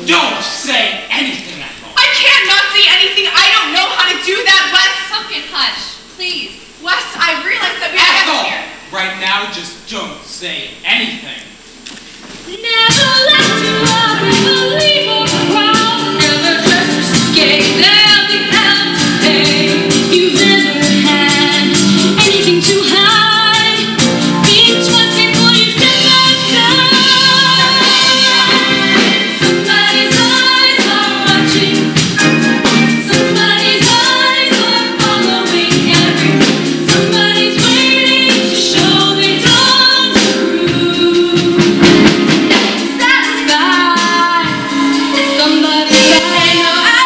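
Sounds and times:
backing music with steady beat: 0:11.6 - 0:47.0
women singing: 0:12.5 - 0:32.0, 0:33.0 - 0:42.0, 0:42.9 - 0:47.0.

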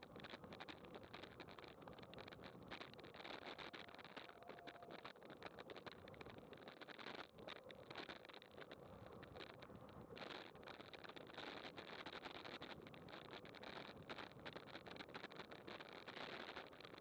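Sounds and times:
bicycle rolling noise: 0:00.0 - 0:17.0
small clicks and rattles: 0:00.0 - 0:17.0
wind: 0:00.0 - 0:17.0.

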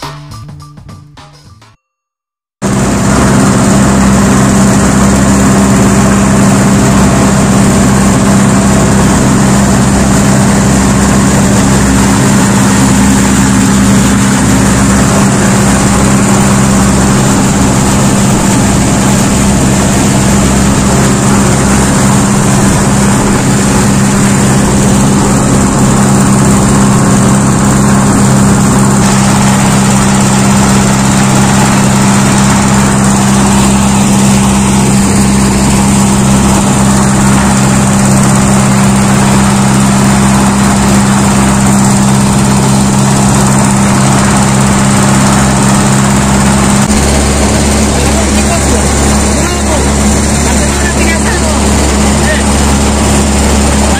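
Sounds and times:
churning water rushing: 0:02.6 - 0:53.9
motorboat engine running: 0:02.6 - 0:53.9.

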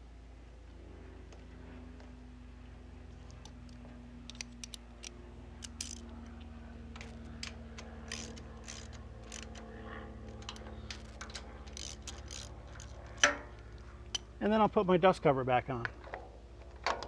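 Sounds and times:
ratchet wrench clicking: 0:04.3 - 0:06.1, 0:07.0 - 0:09.6, 0:10.3 - 0:13.4.

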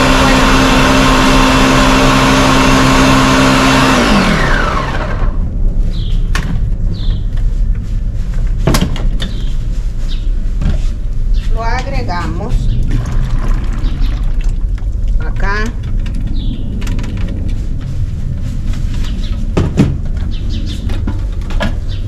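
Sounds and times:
blender motor whining down: 0:00.0 - 0:05.5
electric blender running: 0:00.0 - 0:05.5.

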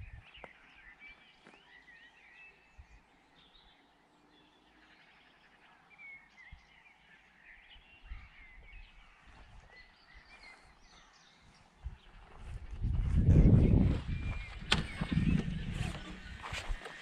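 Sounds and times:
wind rumbling on microphone: 0:00.0 - 0:00.5, 0:07.8 - 0:17.0
small birds singing and chirping: 0:00.0 - 0:17.0.

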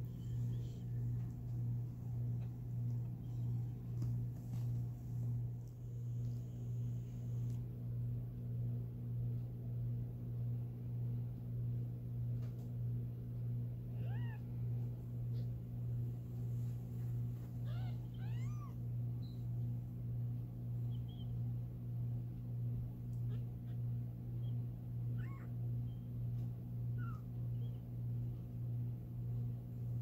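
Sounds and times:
steady low hum: 0:00.0 - 0:30.0
kittens mewing: 0:13.9 - 0:14.5, 0:17.6 - 0:18.8, 0:25.1 - 0:25.6.

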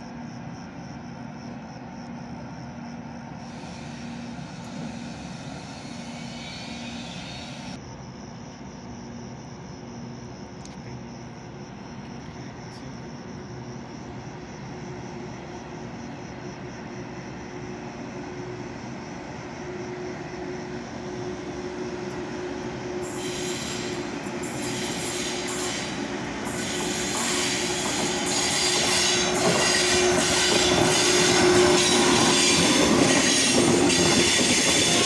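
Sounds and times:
electric train rumbling drone: 0:00.0 - 0:35.0
hissing rattling rail noise: 0:03.4 - 0:07.8, 0:16.6 - 0:35.0.

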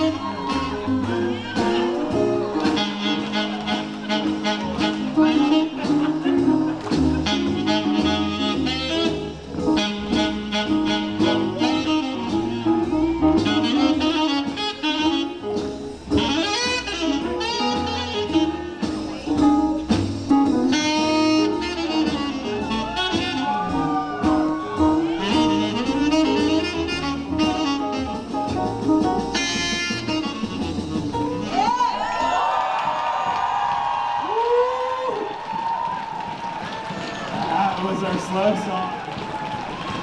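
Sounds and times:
saxophone melody: 0:00.0 - 0:31.9
swing jazz band: 0:00.0 - 0:34.6.

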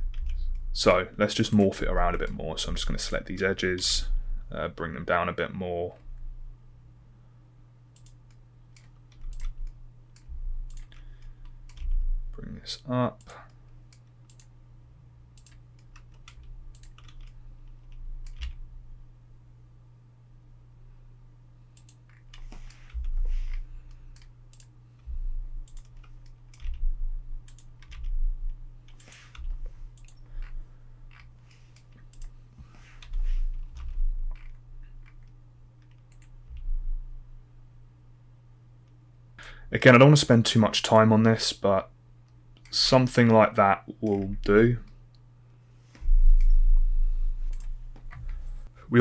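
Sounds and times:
low electrical hum: 0:00.0 - 0:49.0
keyboard and mouse clicking: 0:08.0 - 0:12.0, 0:13.2 - 0:14.5, 0:15.4 - 0:18.6, 0:21.8 - 0:24.7, 0:25.6 - 0:32.4, 0:33.0 - 0:36.7, 0:47.5 - 0:48.3.

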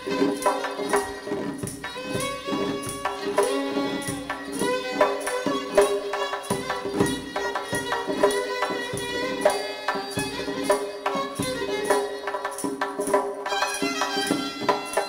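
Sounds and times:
violin melody: 0:00.0 - 0:15.0.

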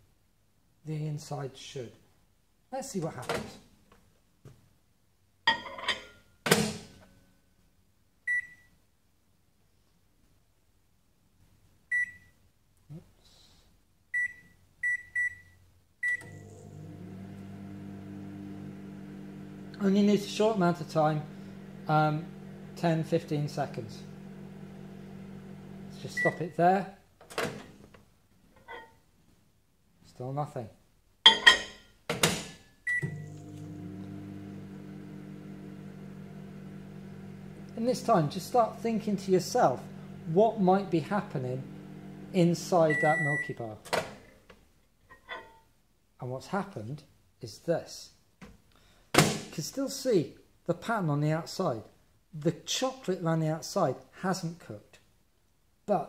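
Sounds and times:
microwave running hum: 0:16.2 - 0:26.4, 0:33.0 - 0:43.4
microwave keypad beeping: 0:26.0 - 0:26.4, 0:42.9 - 0:43.5.

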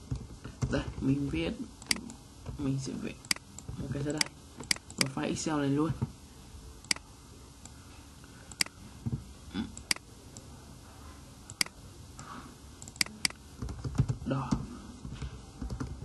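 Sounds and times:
computer mouse clicking: 0:01.8 - 0:02.2, 0:06.8 - 0:07.0, 0:08.5 - 0:08.8, 0:11.5 - 0:11.8, 0:12.8 - 0:14.1.

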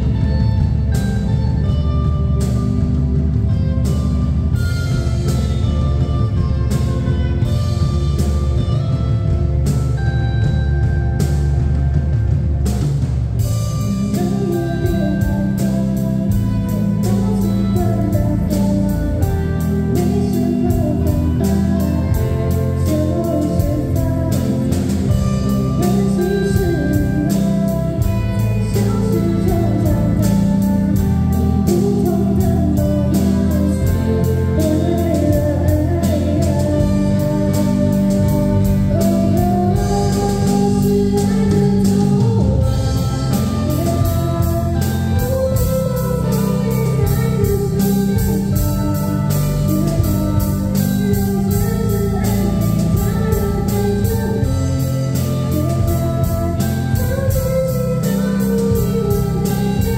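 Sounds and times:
drum kit beat: 0:00.0 - 0:59.9
electric guitars: 0:00.0 - 0:59.9
keyboard: 0:00.0 - 0:59.9
girl singing: 0:13.4 - 0:59.9.

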